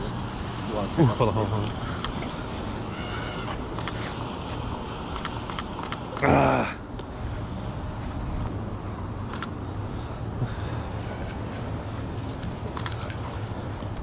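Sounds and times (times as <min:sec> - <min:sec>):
city traffic rumble on wet streets: 0:00.0 - 0:14.0
sharp clicks: 0:05.1 - 0:06.3.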